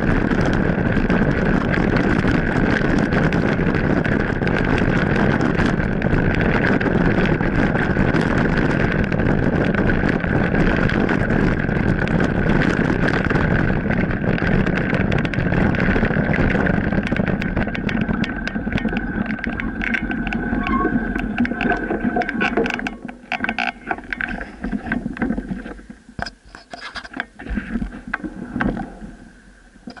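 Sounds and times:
bike tyre rumble on gravel: 0.0 - 30.0
wind noise on microphone: 0.0 - 30.0
high whine: 19.3 - 24.7.

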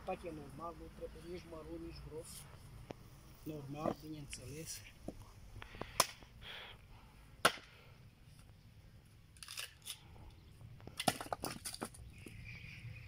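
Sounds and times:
axe splitting log: 7.4 - 7.8, 10.9 - 12.0.

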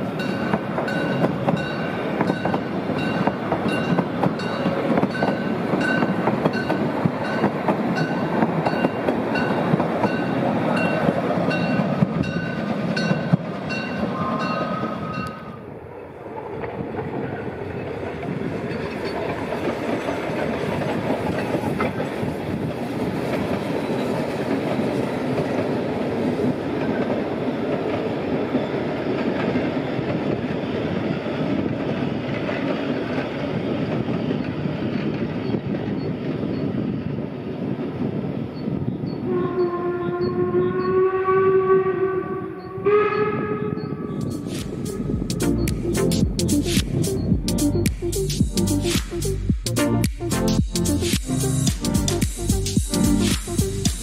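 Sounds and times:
train wheels clicking over rail joints: 0.0 - 14.8
distant train rumble: 0.0 - 54.0.

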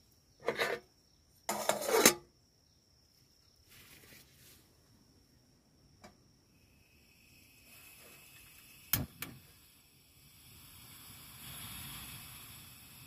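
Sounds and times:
gas flame hissing: 6.0 - 13.0
gas stove igniter clicks: 8.9 - 9.4.

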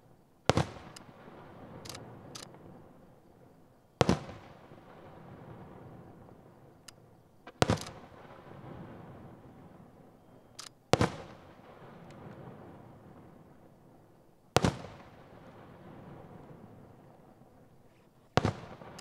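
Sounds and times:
firework shells bursting: 7.5 - 8.2, 18.4 - 19.0.

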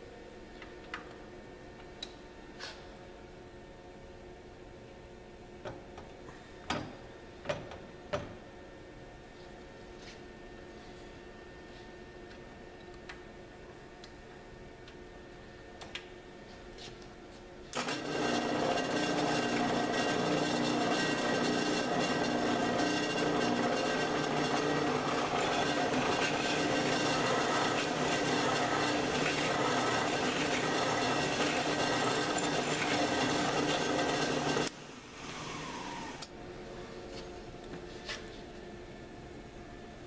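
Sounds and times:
drill biting into metal: 17.8 - 34.7
drill press running: 17.8 - 34.7.

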